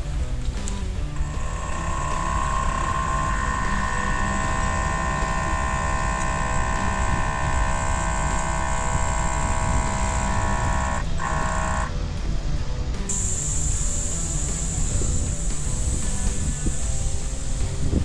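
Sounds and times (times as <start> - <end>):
air compressor whining: 0.0 - 12.2, 13.0 - 18.0
low rumble: 0.0 - 13.0.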